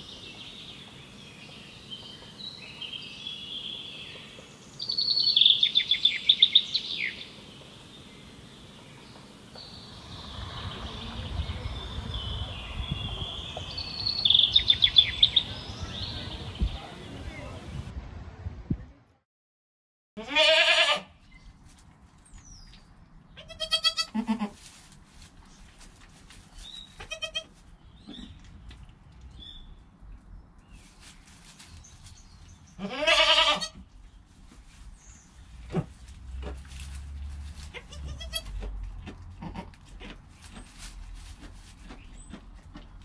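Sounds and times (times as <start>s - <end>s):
young goats bleating: 20.2s - 21.1s, 23.4s - 24.6s, 27.0s - 27.5s, 32.8s - 33.8s, 37.7s - 38.7s, 39.4s - 39.8s.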